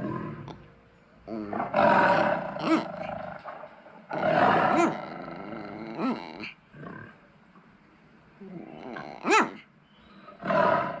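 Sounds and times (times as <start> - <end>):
small dog grumbling: 1.3 - 3.2, 4.1 - 6.6, 8.4 - 9.6
tiger roaring: 1.3 - 3.5, 4.1 - 7.2, 10.4 - 11.0.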